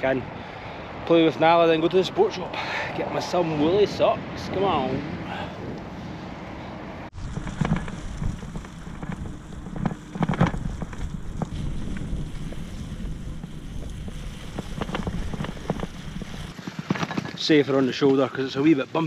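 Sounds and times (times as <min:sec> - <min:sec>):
wind on microphone: 0:03.0 - 0:16.6
bicycle on gravel: 0:07.1 - 0:18.6
knocks and rattles: 0:14.5 - 0:17.7.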